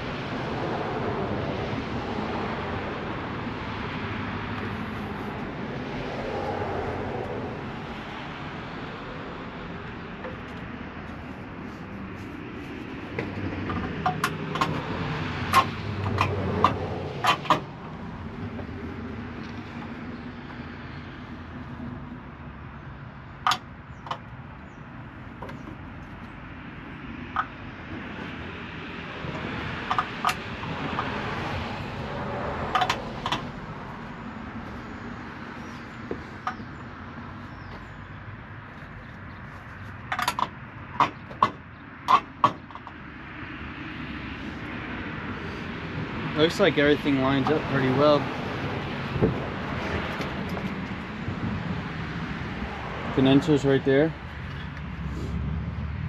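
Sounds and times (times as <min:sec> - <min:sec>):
sharp clicks and knocks: 0:13.1 - 0:17.8, 0:23.4 - 0:24.3, 0:29.3 - 0:31.2, 0:32.7 - 0:33.6, 0:40.1 - 0:43.0.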